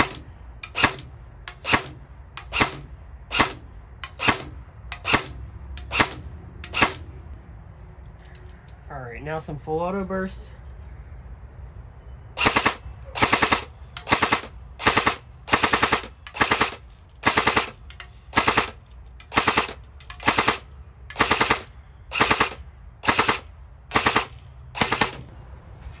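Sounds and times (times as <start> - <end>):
airsoft gun firing bursts: 12.4 - 25.3.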